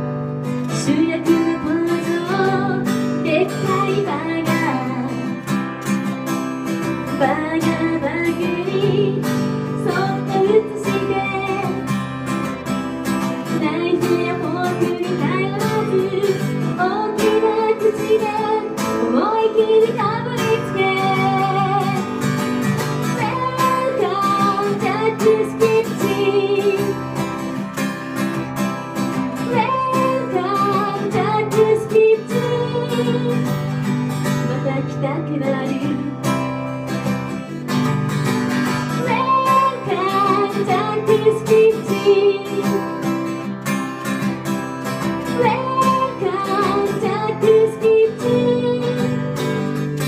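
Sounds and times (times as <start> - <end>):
strummed acoustic guitar: 0.0 - 50.0
woman singing into a microphone: 0.6 - 5.5, 7.1 - 12.2, 13.4 - 27.2, 29.4 - 36.6, 38.9 - 43.3, 45.2 - 50.0.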